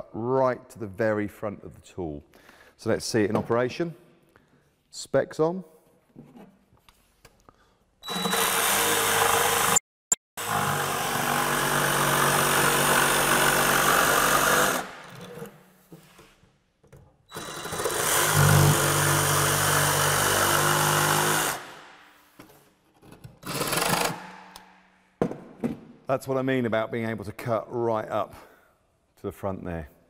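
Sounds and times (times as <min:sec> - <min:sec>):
jigsaw cutting a board: 0:08.1 - 0:09.8, 0:10.4 - 0:15.4, 0:17.3 - 0:21.8, 0:23.4 - 0:24.3.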